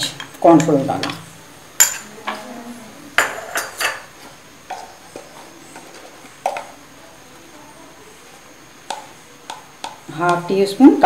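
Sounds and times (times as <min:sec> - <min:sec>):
spoons clinking against steel bowls: 0:00.0 - 0:02.4, 0:03.2 - 0:06.8.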